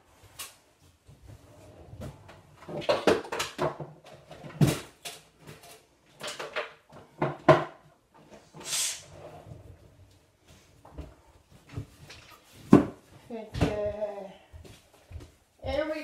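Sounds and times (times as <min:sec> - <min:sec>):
kitchen items clattering: 0:01.3 - 0:08.6
short hiss: 0:08.6 - 0:09.1.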